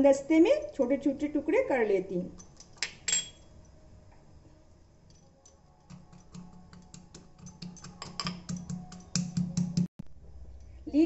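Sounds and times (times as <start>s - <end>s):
stone pestle pounding nuts: 5.9s - 9.9s.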